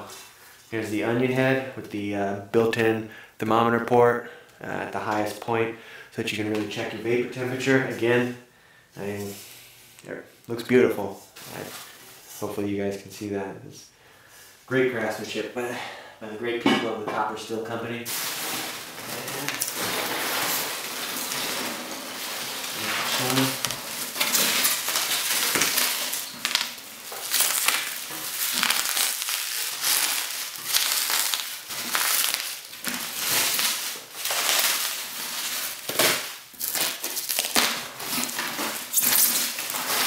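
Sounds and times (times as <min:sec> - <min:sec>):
packing peanuts and bubble wrap crunching: 0:18.1 - 0:40.0.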